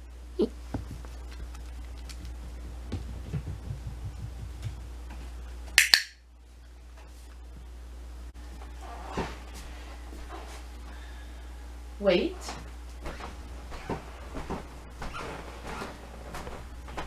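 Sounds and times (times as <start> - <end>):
puppy paw steps pattering: 0.7 - 5.4.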